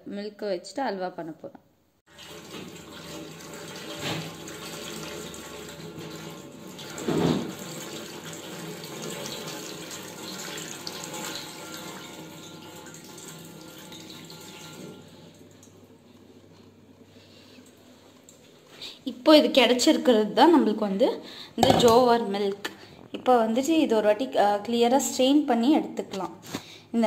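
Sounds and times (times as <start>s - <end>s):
water pouring into a sink: 2.1s - 15.9s.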